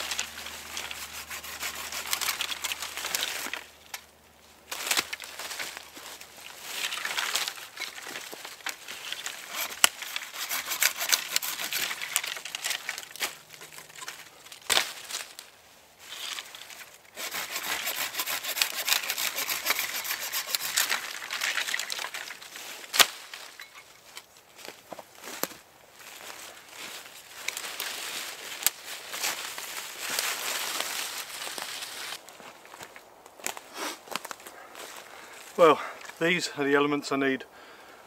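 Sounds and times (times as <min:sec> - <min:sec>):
dry wood snapping: 0:00.0 - 0:04.1, 0:04.7 - 0:15.5, 0:16.3 - 0:24.3
leaves and branches rustling: 0:00.0 - 0:37.4.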